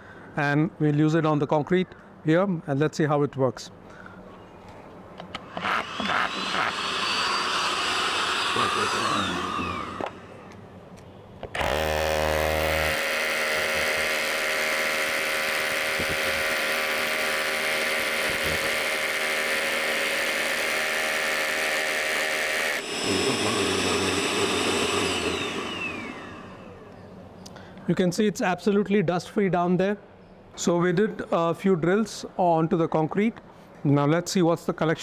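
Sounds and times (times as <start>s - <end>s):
rotary hammer drilling into concrete: 5.4s - 10.4s, 11.6s - 26.7s.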